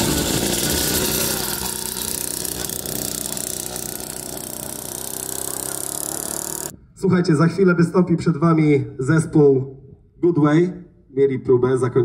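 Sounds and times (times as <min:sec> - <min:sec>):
motorcycle engine running: 0:00.0 - 0:06.7.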